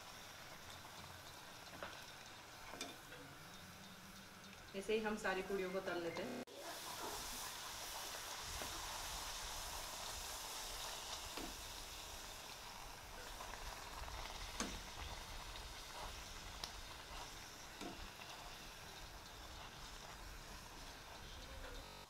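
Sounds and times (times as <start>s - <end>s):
food deep-frying in oil: 0.0s - 22.0s.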